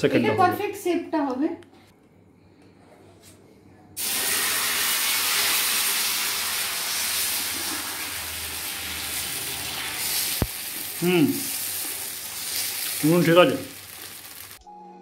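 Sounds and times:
batter sizzling on hot pan: 4.0s - 14.6s.

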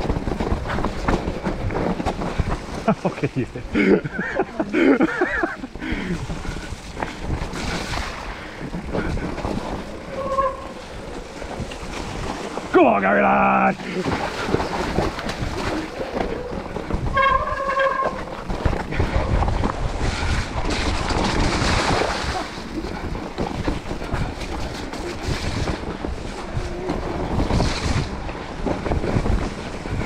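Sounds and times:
wind buffeting microphone: 0.0s - 13.0s, 13.7s - 30.0s
bike rattling over bumps: 0.0s - 30.0s
tyres rumbling on mud: 0.0s - 30.0s.

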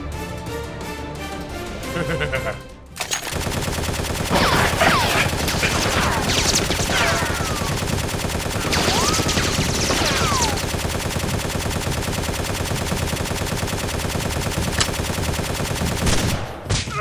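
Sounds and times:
background music: 0.0s - 3.4s
automatic gunfire: 3.0s - 16.7s
ricochet whines: 8.6s - 10.7s.

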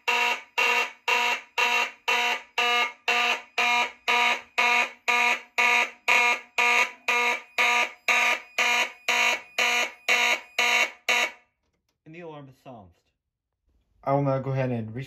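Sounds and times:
fire alarm horn blasts: 0.0s - 11.5s.

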